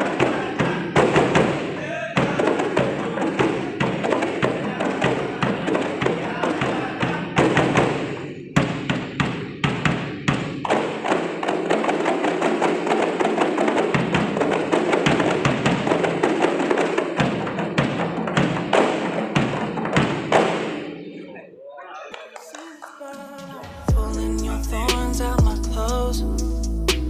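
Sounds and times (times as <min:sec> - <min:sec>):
large barrel drum beating: 0:00.0 - 0:20.8
frame drums ensemble playing: 0:10.4 - 0:20.8, 0:23.2 - 0:27.0.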